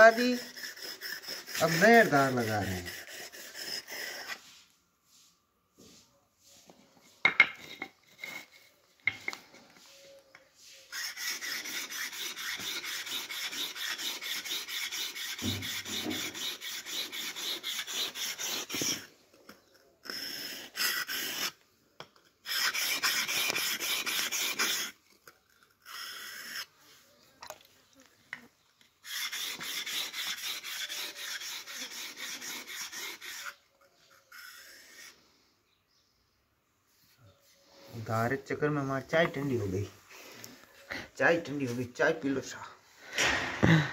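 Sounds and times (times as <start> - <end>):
chisel scraping on sharpening stone: 0.0 - 4.4, 7.2 - 9.4, 10.7 - 26.7, 29.0 - 35.2.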